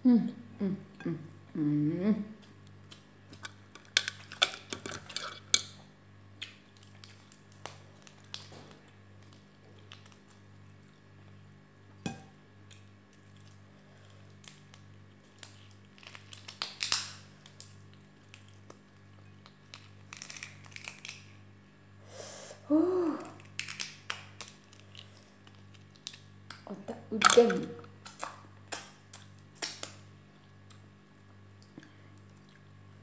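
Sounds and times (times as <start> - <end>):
steady low hum: 0.0 - 16.6
prawn shell cracking: 14.3 - 18.8, 19.4 - 21.4, 23.4 - 26.2.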